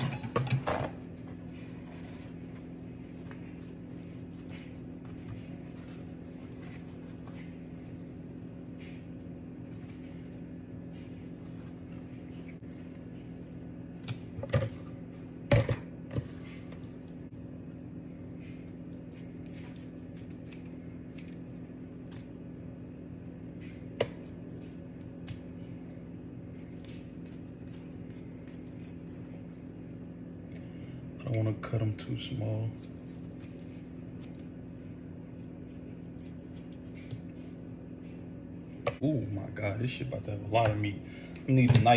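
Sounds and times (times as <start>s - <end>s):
low electrical hum: 0.0s - 41.9s.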